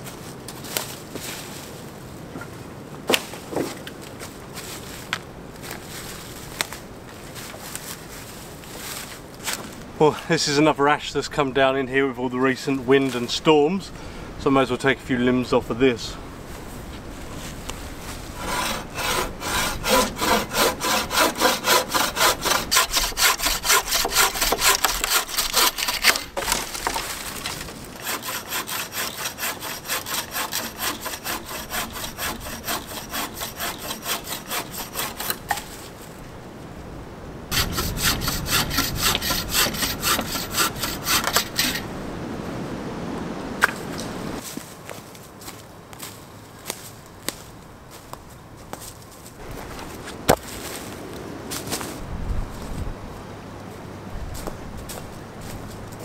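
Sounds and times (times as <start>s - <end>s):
bucksaw cutting through wood: 18.3s - 35.8s, 37.5s - 41.9s.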